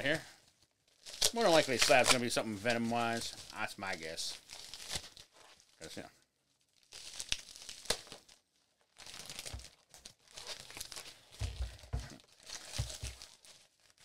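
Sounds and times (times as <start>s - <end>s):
packaging tearing and crinkling: 0.9s - 5.8s, 6.6s - 14.0s.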